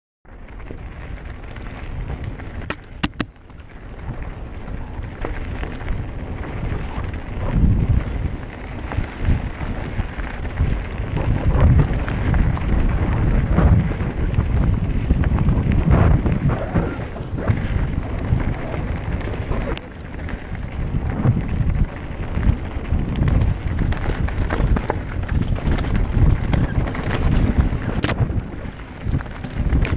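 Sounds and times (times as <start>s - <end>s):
wind buffeting microphone: 0.4s - 29.9s
sharp clicks: 2.6s - 3.7s
tyres rattling over stones: 16.6s - 29.9s.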